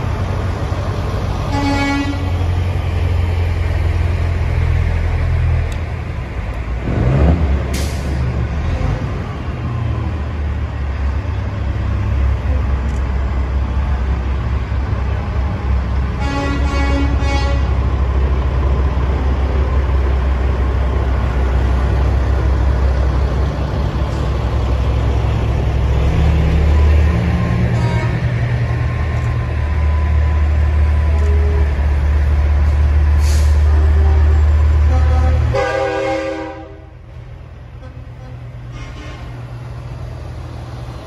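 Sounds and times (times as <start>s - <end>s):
diesel trucks rumbling past: 0.0s - 41.0s
truck air horn: 1.5s - 2.4s, 16.2s - 17.7s, 27.7s - 28.4s, 33.2s - 37.0s, 37.8s - 39.4s
air brake hiss: 33.2s - 33.7s.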